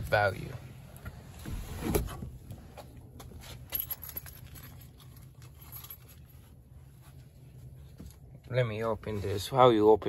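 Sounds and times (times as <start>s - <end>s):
low steady hum: 0.0s - 10.0s
handling clicks and rustles: 0.9s - 8.9s.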